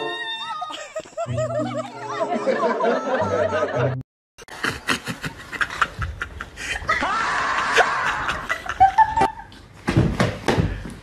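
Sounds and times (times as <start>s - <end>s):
snickering laughter: 0.7s - 9.5s.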